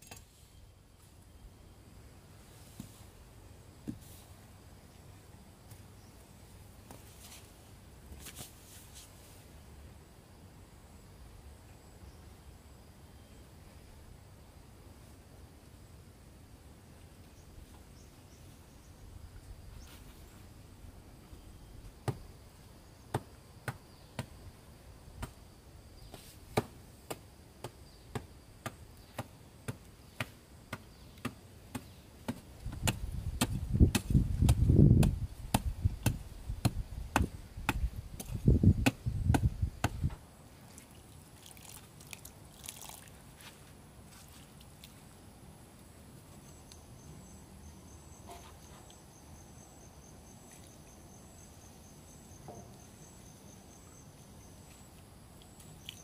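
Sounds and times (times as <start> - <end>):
sharp evenly spaced knocks: 23.1 - 24.4, 26.5 - 40.1.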